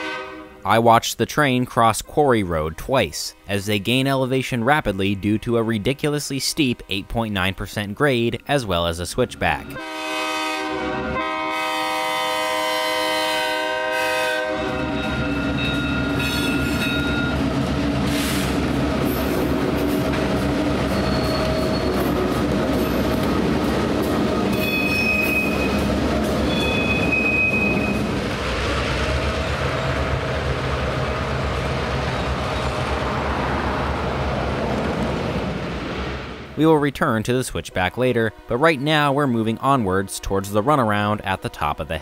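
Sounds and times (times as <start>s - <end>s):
locomotive horn: 0.0s - 0.7s, 9.5s - 17.3s, 37.9s - 42.0s
high wheel squeals: 20.8s - 23.2s, 24.5s - 28.1s.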